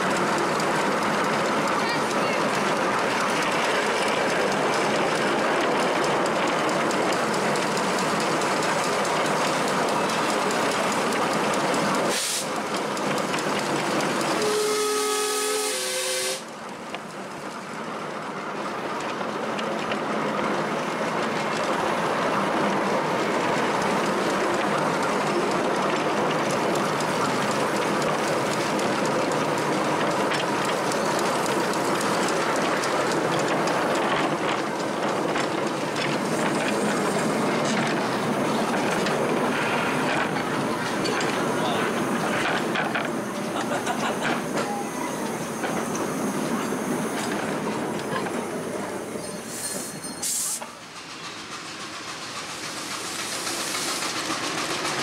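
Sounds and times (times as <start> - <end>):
wheels clattering on track: 0.0 - 15.6, 16.4 - 55.0
steam hissing: 0.0 - 16.6, 22.0 - 55.0
steam whistle blowing: 12.1 - 12.5, 14.3 - 16.5.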